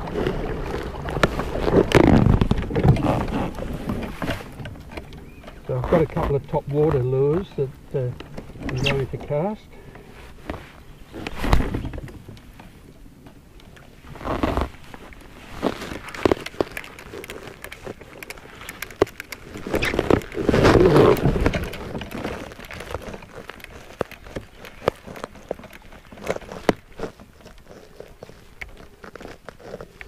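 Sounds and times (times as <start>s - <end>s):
small ticks: 16.1s - 20.4s.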